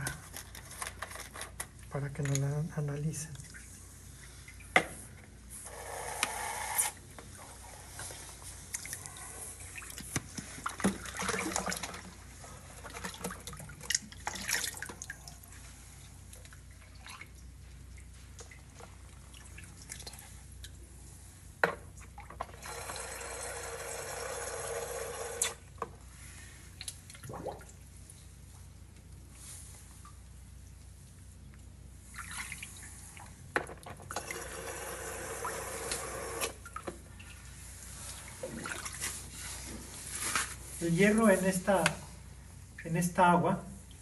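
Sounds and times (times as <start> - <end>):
water splashing and trickling: 2.2 - 4.8, 7.3 - 23.2, 26.5 - 28.8, 29.5 - 34.7, 36.6 - 41.8.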